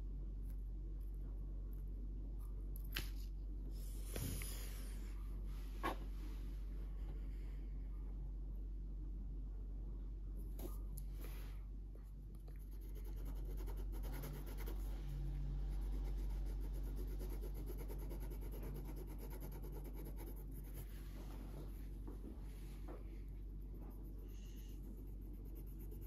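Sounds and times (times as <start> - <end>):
low steady hum: 0.0 - 26.0
felt-tip pen scribbling on paper: 12.6 - 14.9, 15.8 - 20.9, 23.9 - 26.0.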